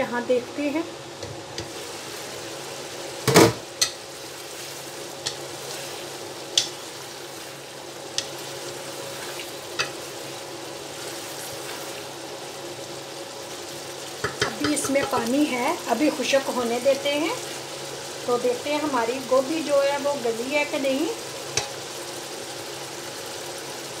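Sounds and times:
food sizzling and bubbling in pan: 0:00.0 - 0:24.0
wooden spatula ticking against pan: 0:14.2 - 0:15.3.

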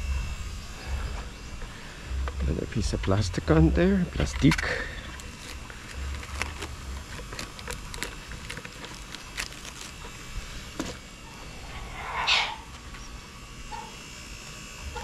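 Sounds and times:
plastic strip crinkling: 0:04.3 - 0:10.2.

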